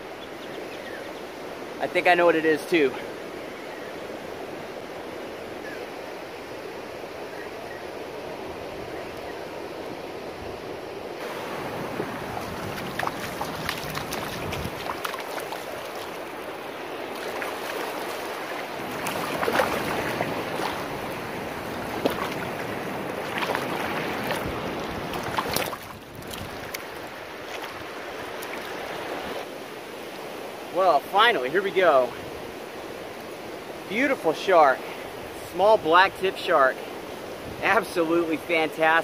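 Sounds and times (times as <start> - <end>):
wind on microphone: 10.3 - 29.5
surf breaking on beach: 11.2 - 29.5
shark thrashing in shallow water: 11.5 - 28.7.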